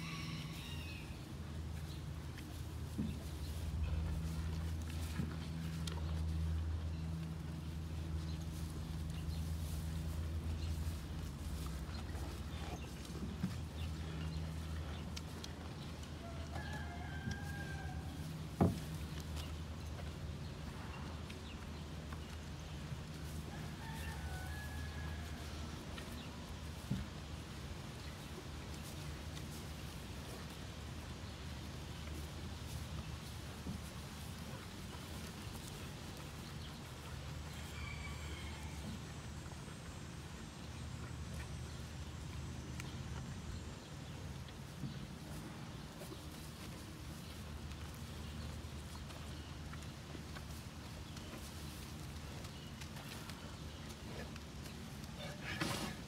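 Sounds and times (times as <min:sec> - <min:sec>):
rooster crowing: 0:00.0 - 0:01.2, 0:16.2 - 0:18.2, 0:23.5 - 0:25.5, 0:37.6 - 0:39.0
cow chewing hay: 0:00.0 - 0:56.0
steady low hum: 0:00.0 - 0:56.0
steady low rumble: 0:01.0 - 0:16.5, 0:38.7 - 0:55.2.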